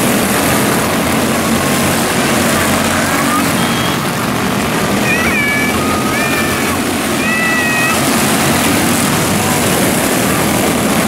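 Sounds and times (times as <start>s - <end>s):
small race car engines droning: 0.0s - 11.0s
high-pitched squeals: 2.4s - 8.9s.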